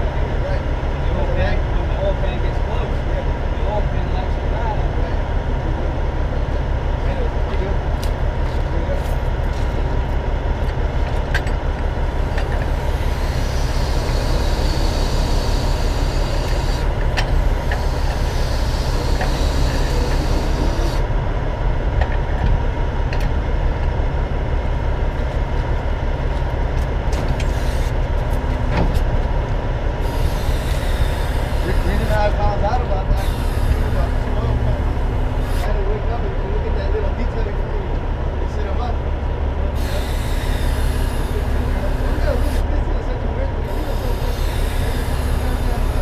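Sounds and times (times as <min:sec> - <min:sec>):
diesel truck engine idling: 0:00.0 - 0:46.0.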